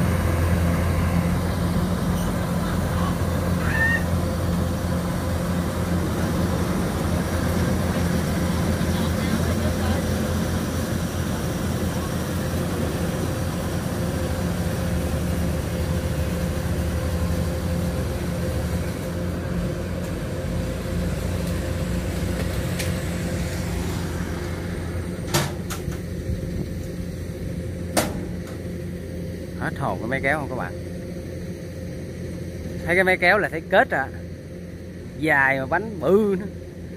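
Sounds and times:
diesel engine running: 0.0s - 36.9s.

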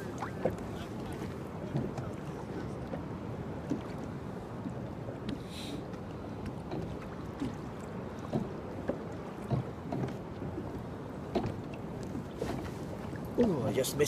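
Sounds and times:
waves lapping against kayak: 0.0s - 14.0s.

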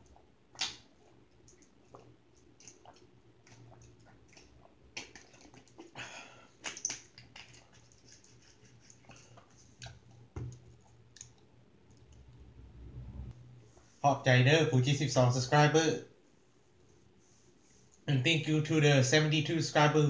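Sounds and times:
chewing: 0.0s - 6.0s, 6.6s - 12.2s.

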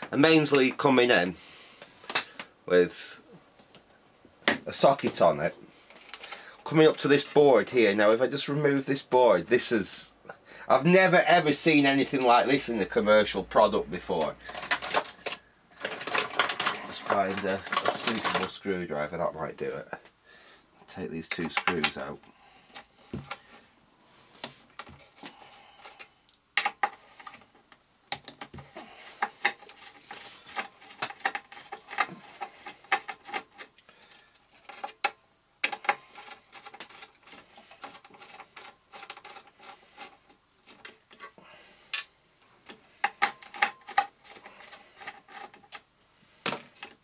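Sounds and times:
light clicks taps and scrapes: 3.6s - 8.0s, 11.8s - 18.6s, 20.8s - 23.7s, 24.3s - 47.0s.

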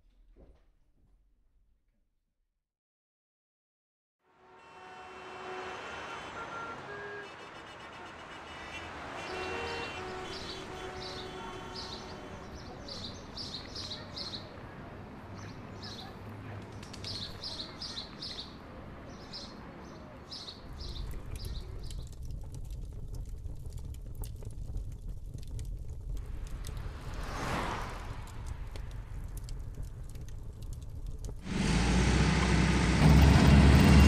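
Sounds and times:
birds chirping: 8.4s - 14.7s, 15.3s - 22.3s
faint crackling: 20.6s - 31.5s
low rumble: 20.6s - 31.5s.

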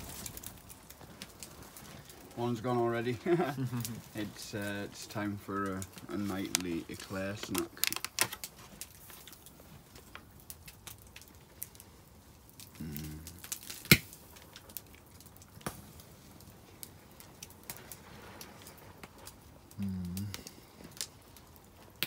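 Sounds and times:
wood fire crackling: 0.0s - 22.0s
person humming: 12.8s - 13.4s, 19.8s - 20.4s.

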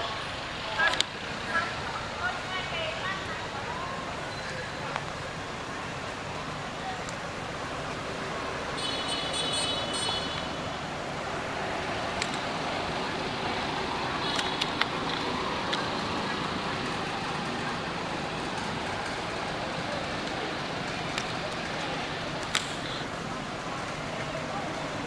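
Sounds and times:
road traffic hum: 0.0s - 25.0s
faint clicks: 12.2s - 12.5s, 22.4s - 23.1s.

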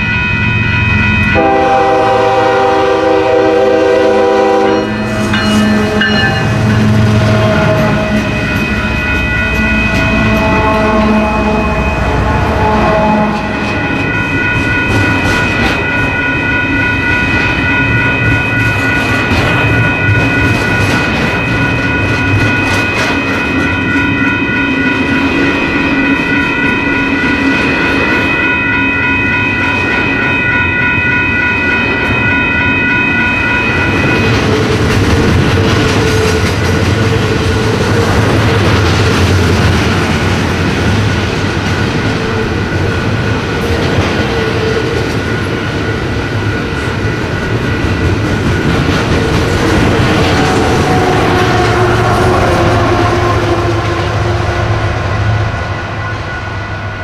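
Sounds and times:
freight train rumbling: 0.0s - 57.0s
steady high-pitched tones: 0.0s - 57.0s
wheels clattering on rail: 13.0s - 28.4s, 33.6s - 54.6s.

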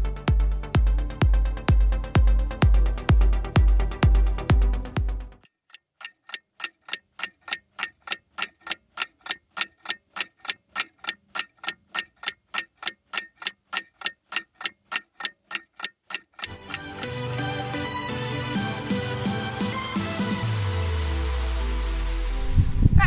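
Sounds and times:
clock ticking fast: 5.4s - 20.0s.

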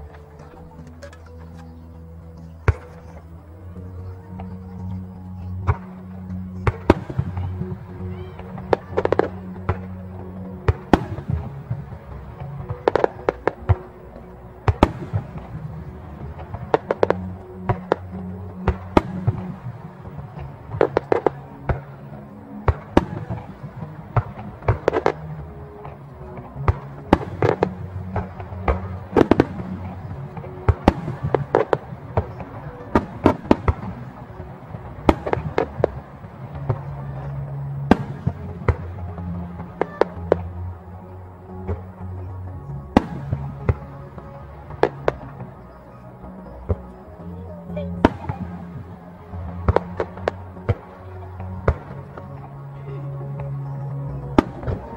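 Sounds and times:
music with low bass line: 0.0s - 54.9s
fireworks bursting with sharp bangs: 5.6s - 40.8s, 42.9s - 45.7s, 47.7s - 52.6s, 54.3s - 54.9s.

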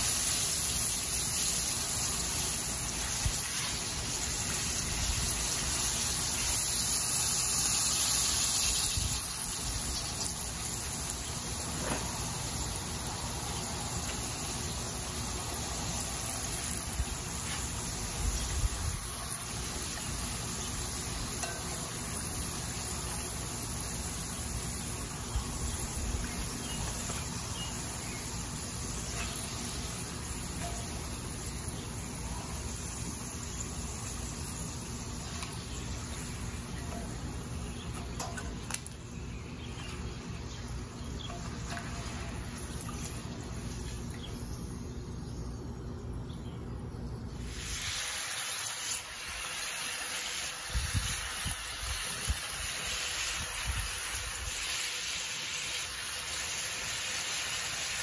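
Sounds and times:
potato slices frying in oil: 0.0s - 45.0s, 47.4s - 58.0s.

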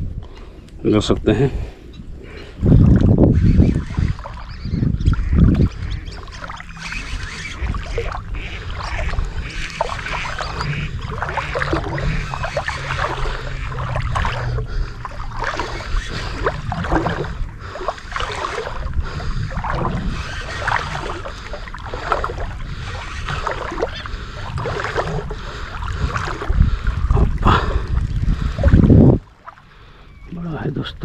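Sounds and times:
wind rumbling on microphone: 0.0s - 31.0s
water sloshing and splashing: 2.5s - 30.1s.

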